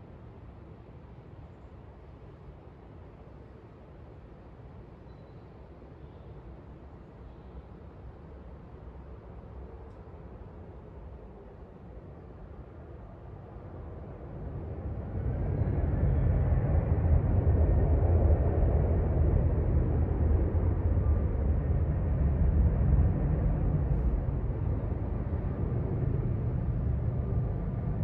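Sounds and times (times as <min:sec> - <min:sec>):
low steady rumble: 0:13.8 - 0:28.0.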